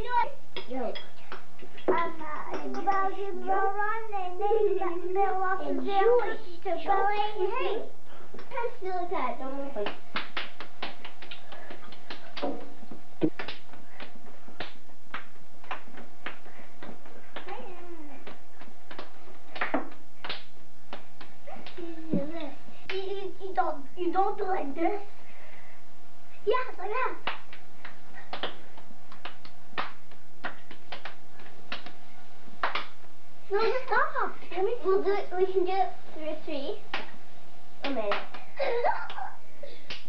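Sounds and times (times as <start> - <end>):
children's hand-clapping game: 0.0 - 24.6, 26.5 - 32.0, 32.6 - 35.8, 36.8 - 37.2, 37.8 - 40.0
children clapping hands: 9.8 - 12.6, 27.2 - 32.0, 32.6 - 33.0.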